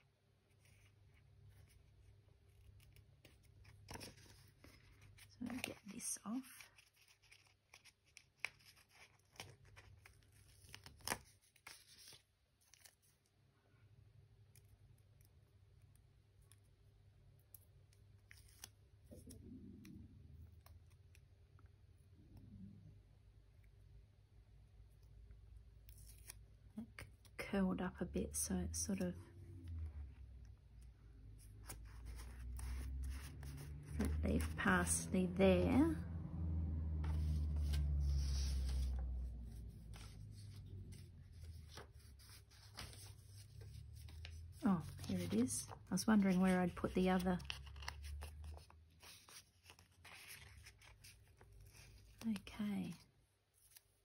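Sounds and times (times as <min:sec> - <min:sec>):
paper rustling: 0:00.5 - 0:13.2, 0:31.4 - 0:35.0, 0:37.0 - 0:52.6
soft low sound: 0:28.5 - 0:49.4
hand rubbing paper: 0:31.4 - 0:35.0, 0:37.0 - 0:52.2.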